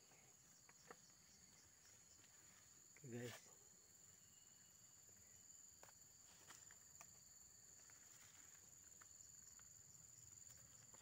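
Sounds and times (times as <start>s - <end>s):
high insect drone: 0.0s - 11.0s.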